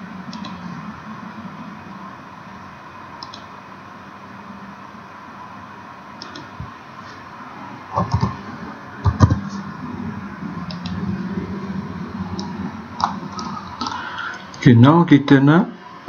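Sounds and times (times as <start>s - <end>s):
low background hum: 0.0s - 16.0s
computer mouse clicks: 0.3s - 0.6s, 3.2s - 3.5s, 6.2s - 6.5s, 10.7s - 11.0s
keyboard keystrokes: 3.2s - 3.5s.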